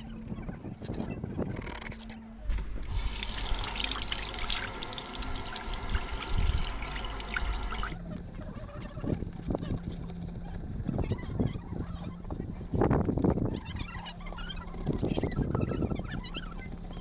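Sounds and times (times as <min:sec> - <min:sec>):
tap water running and splashing: 0:02.8 - 0:08.0.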